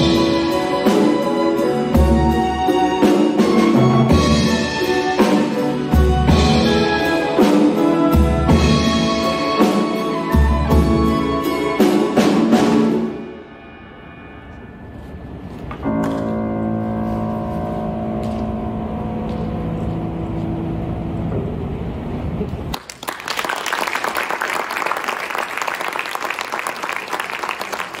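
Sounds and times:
audience applause: 22.7 - 28.0.

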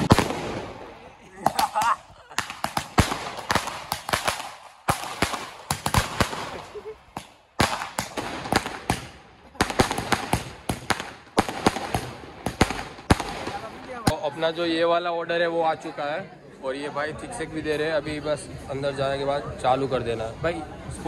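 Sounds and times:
firecracker bangs: 0.0 - 14.2.

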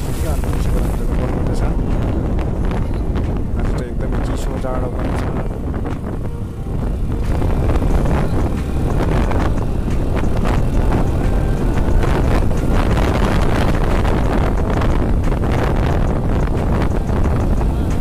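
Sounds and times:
wind buffeting microphone: 0.0 - 18.0
motorcycle engine running: 5.0 - 18.0.

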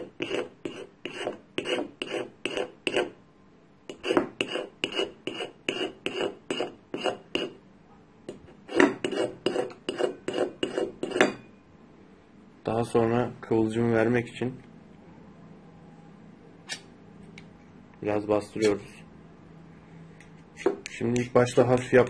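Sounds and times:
knife scraping metal rod: 0.0 - 3.2, 3.9 - 7.6, 8.6 - 11.4, 16.7 - 16.9.

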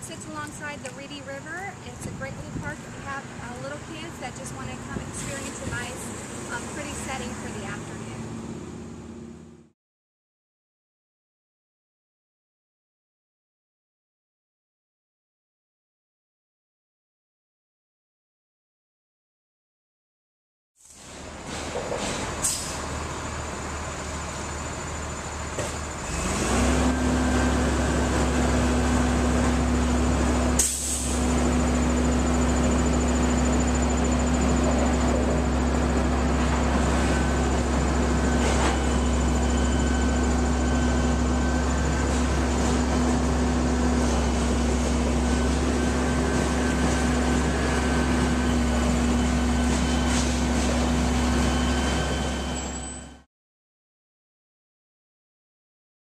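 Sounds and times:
vehicle engine humming: 0.0 - 9.7, 21.0 - 52.6.

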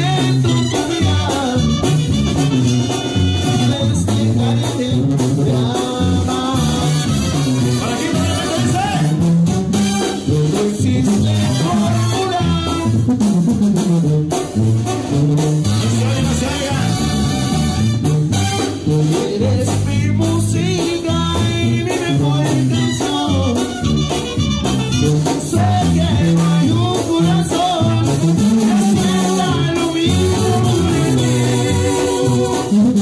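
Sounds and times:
brass band music: 0.0 - 33.0
sousaphone bass line: 0.0 - 33.0
person singing: 25.2 - 33.0.

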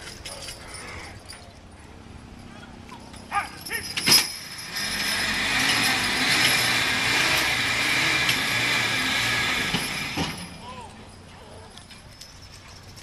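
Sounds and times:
hydraulic pump whining: 3.5 - 10.7.

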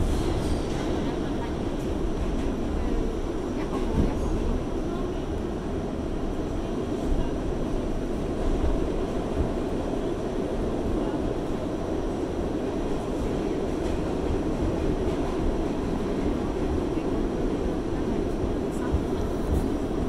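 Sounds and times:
subway train rumbling in tunnel: 0.0 - 20.0.

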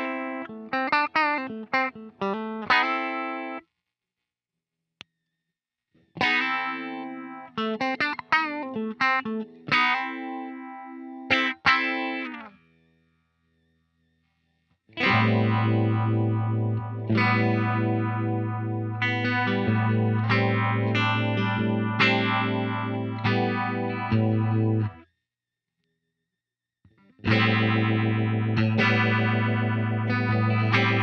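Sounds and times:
electric guitar with phaser: 0.0 - 3.6, 6.2 - 12.6, 15.0 - 25.0, 27.0 - 31.0.

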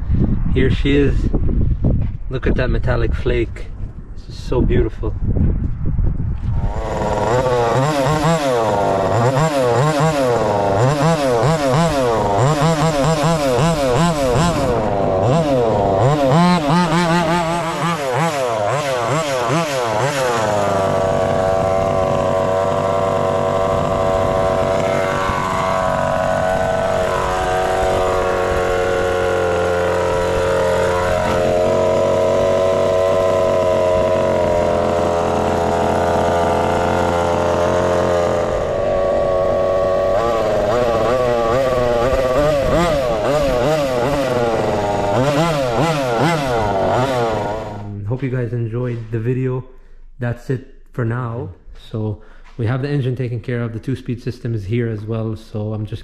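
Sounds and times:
two-stroke engine revving: 6.5 - 48.1.

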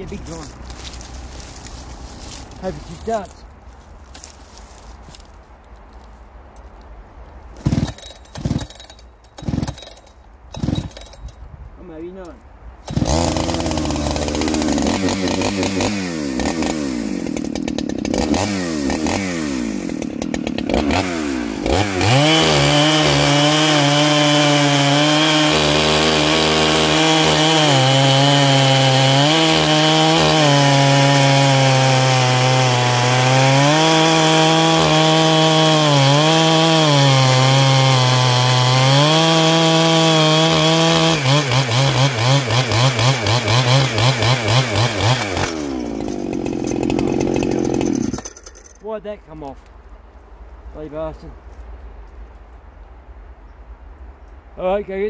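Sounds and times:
chainsaw revving: 7.6 - 9.9, 10.5 - 11.1, 12.9 - 48.8
chainsaw cutting through log: 7.6 - 11.1, 12.9 - 48.8.

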